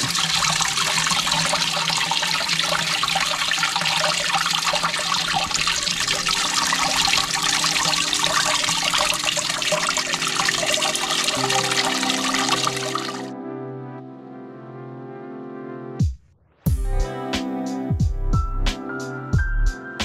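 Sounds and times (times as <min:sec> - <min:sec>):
water rushing and trickling: 0:00.0 - 0:13.3.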